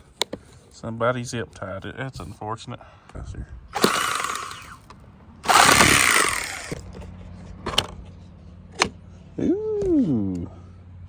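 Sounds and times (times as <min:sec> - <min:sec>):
rough rasping and rustling: 0:03.8 - 0:08.6.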